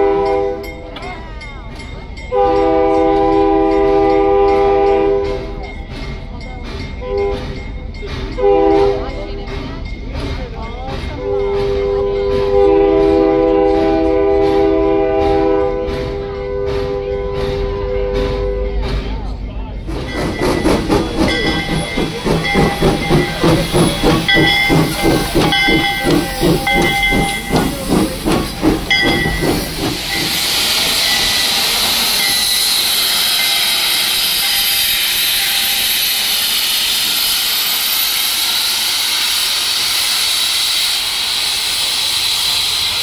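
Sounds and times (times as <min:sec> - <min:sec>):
steam locomotive chuffing: 0:00.0 - 0:43.0
loud hiss of escaping steam: 0:19.8 - 0:43.0.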